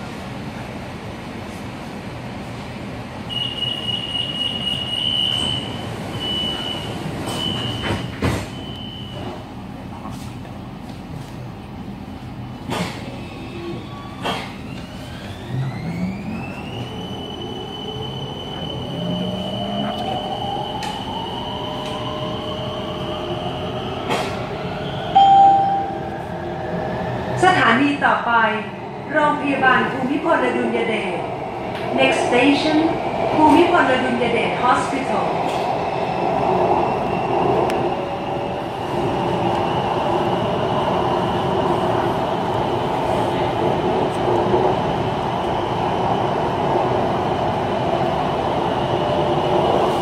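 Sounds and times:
low train hum: 0.0 - 50.0
high door warning beeping: 3.3 - 9.3.

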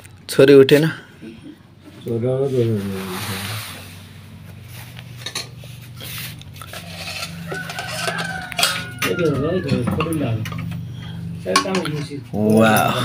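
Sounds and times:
metal spoon scraping steel plate: 6.6 - 10.8.

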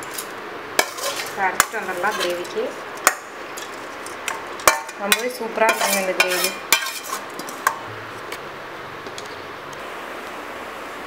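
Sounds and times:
metal spoon scraping a pan: 0.0 - 7.8.

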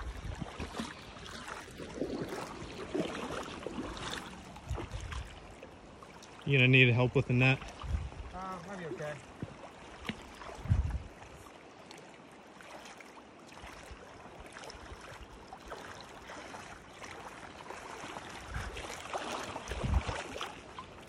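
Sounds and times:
river flowing over stones: 0.0 - 7.5.

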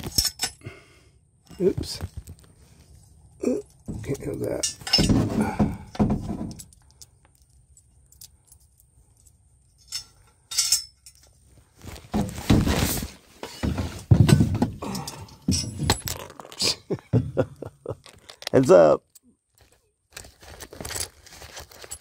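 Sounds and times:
metal clinking and clattering: 0.0 - 0.6, 3.6 - 11.4, 13.4 - 16.8, 18.0 - 18.6.

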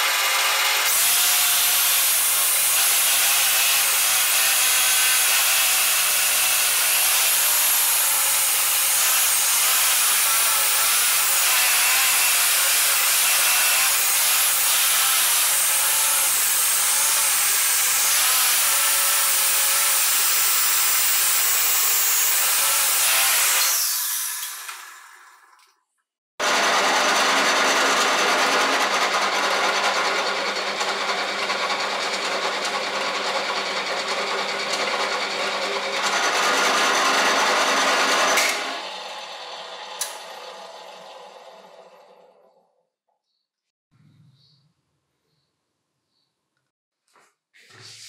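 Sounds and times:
electric drill motor spinning: 0.0 - 25.6, 26.4 - 42.6
click: 40.0 - 40.2.

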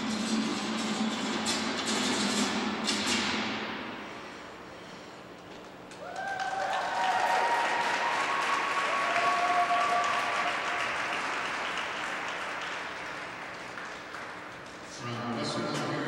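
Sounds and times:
audience cheering: 5.9 - 13.0
audience applauding: 5.9 - 14.9.

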